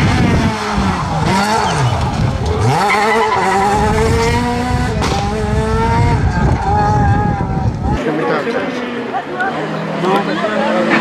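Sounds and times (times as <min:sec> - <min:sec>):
rally car engine revving: 0:00.0 - 0:11.0.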